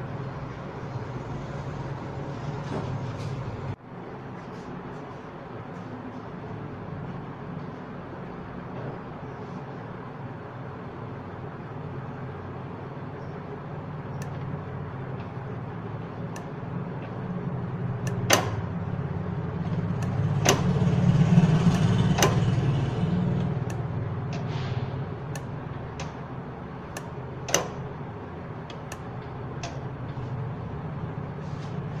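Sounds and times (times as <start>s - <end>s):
turbo engine running: 13.7s - 32.0s
sharp clicks: 18.0s - 18.7s, 21.6s - 22.7s, 25.3s - 26.2s, 26.9s - 27.9s, 28.6s - 29.9s.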